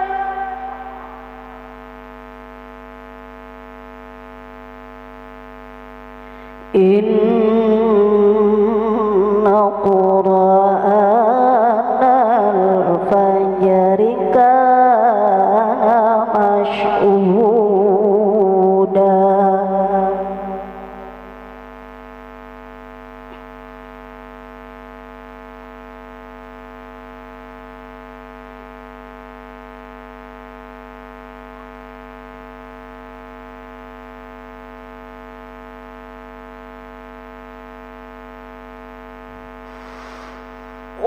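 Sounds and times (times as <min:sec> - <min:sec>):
electrical drone: 0:00.0 - 0:10.4, 0:39.4 - 0:41.0
low mains hum: 0:00.0 - 0:41.0.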